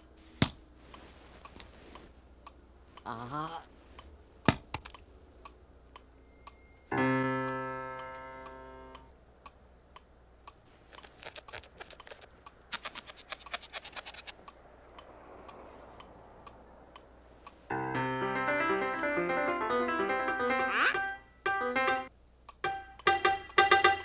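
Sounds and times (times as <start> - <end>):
piano chord ringing: 6.1 - 9.0, 17.7 - 24.0
rapid piano notes: 6.9 - 9.1, 17.7 - 24.0
quick sharp clicks: 10.5 - 17.1.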